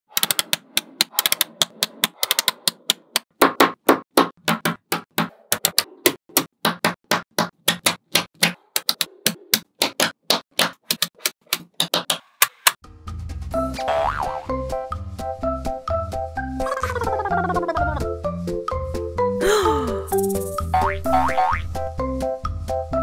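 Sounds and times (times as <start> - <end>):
magnetic balls clicking: 0.1 - 3.3.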